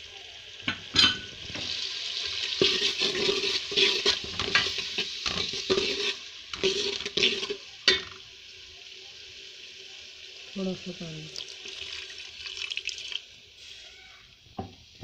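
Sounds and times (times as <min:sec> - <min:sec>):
tomatoes sizzling in hot fat: 0:00.0 - 0:15.0
steel ladle scraping a pot: 0:02.6 - 0:07.6.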